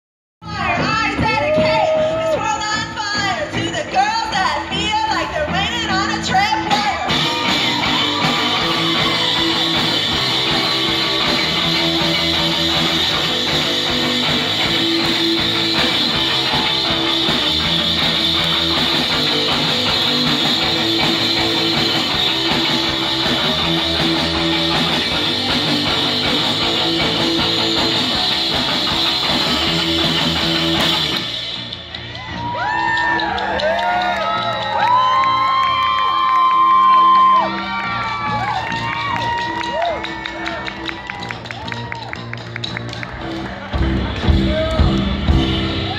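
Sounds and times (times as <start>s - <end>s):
drum kit: 0.4s - 45.9s
distorted electric guitar: 4.6s - 34.6s.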